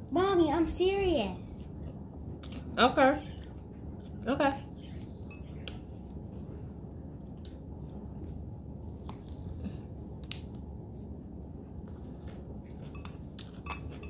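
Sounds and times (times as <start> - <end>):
person chewing salad: 11.4 - 14.0
metal fork clicking on glass bowl: 13.0 - 14.0.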